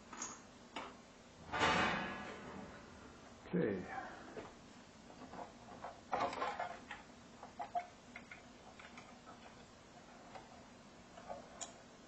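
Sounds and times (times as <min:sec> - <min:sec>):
circuit board clicks and rattles: 0:06.1 - 0:09.6.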